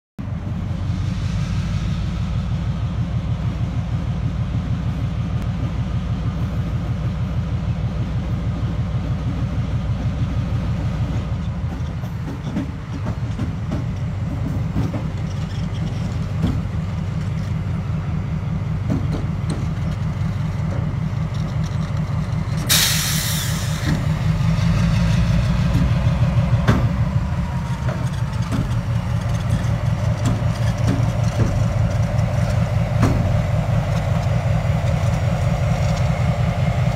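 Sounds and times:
diesel locomotive running: 0:00.2 - 0:36.9
train wheels clicking over rail joints: 0:00.3 - 0:36.9
brief hiss: 0:22.7 - 0:24.0.

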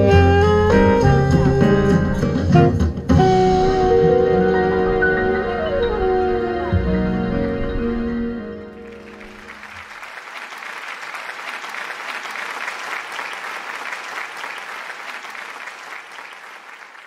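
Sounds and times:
piano and saxophone chord: 0:00.0 - 0:09.8
audience applause: 0:08.8 - 0:17.0.

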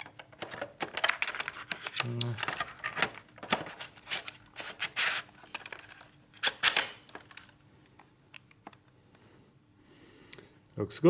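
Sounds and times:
plastic rustling and scraping: 0:00.0 - 0:07.5.

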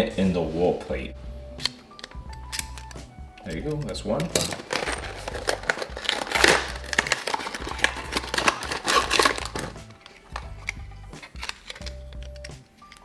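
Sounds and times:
background music: 0:00.0 - 0:13.0
plastic packaging crinkling: 0:04.3 - 0:13.0.

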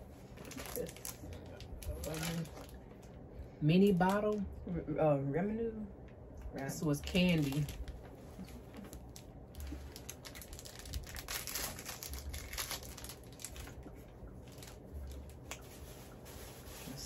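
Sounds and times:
plastic candy wrapper crinkling: 0:00.3 - 0:02.8, 0:07.0 - 0:15.8.

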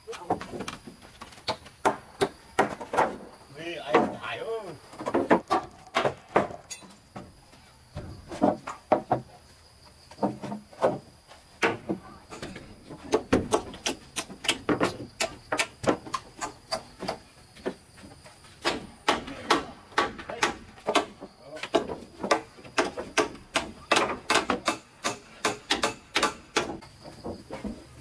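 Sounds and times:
sharp knocking and clattering: 0:10.2 - 0:27.9.

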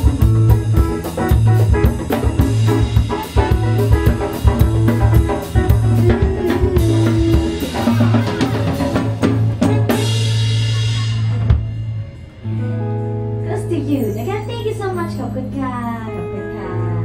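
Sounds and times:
drum kit beat: 0:00.0 - 0:13.6
electric bass: 0:00.0 - 0:17.0
electric guitar: 0:00.0 - 0:17.0
saxophone: 0:02.8 - 0:12.3.

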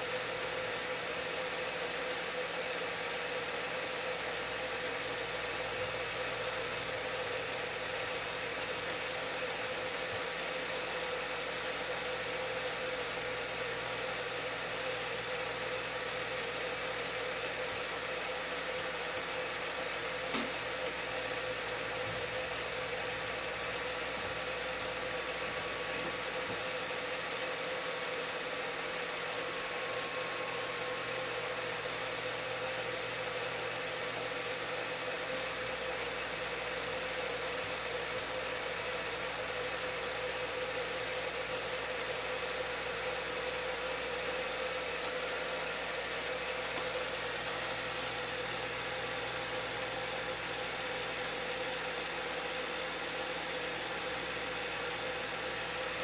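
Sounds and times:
mechanical whir: 0:04.6 - 0:40.4.

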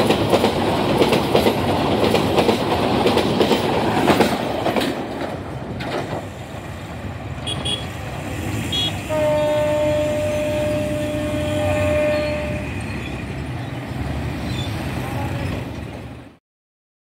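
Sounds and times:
low train rumble: 0:00.0 - 0:16.4
locomotive horn blast: 0:07.4 - 0:08.0, 0:08.7 - 0:12.8.

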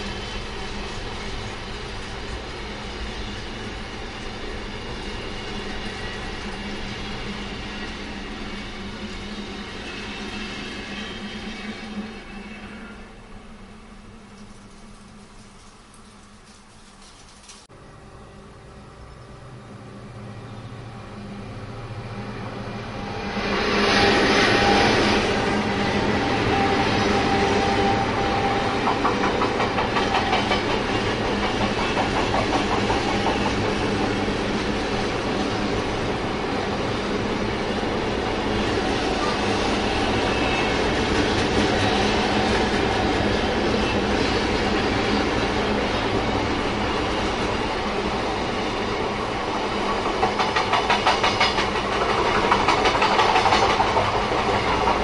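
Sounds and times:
train wheels rumbling on rail: 0:00.0 - 0:17.7, 0:18.9 - 0:55.0
diesel locomotive running: 0:16.4 - 0:55.0
clickety-clack over rail joints: 0:27.4 - 0:35.2, 0:49.7 - 0:55.0.

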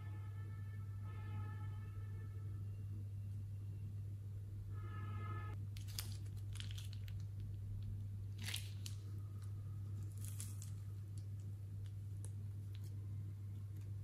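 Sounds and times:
steady low hum: 0:00.0 - 0:14.0
plastic bag crinkling: 0:05.8 - 0:11.5.

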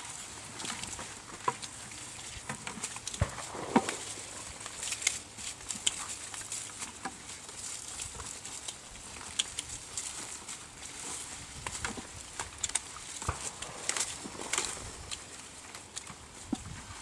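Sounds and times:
vine leaves rustling: 0:00.0 - 0:17.0
grape clusters clicking and snapping: 0:00.9 - 0:16.6.

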